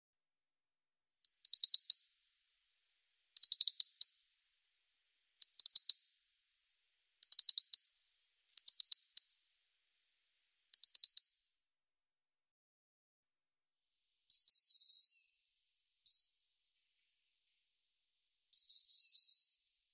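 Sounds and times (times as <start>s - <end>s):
robin ticking alarm call: 1.3s - 2.2s, 3.3s - 6.6s, 7.2s - 9.4s, 10.6s - 11.3s, 14.3s - 16.4s, 18.5s - 19.7s.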